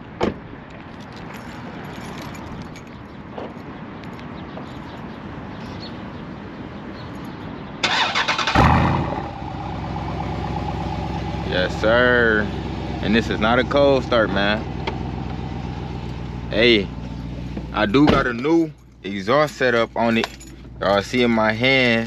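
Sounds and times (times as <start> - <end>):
car engine revving then idling: 7.8 - 16.5.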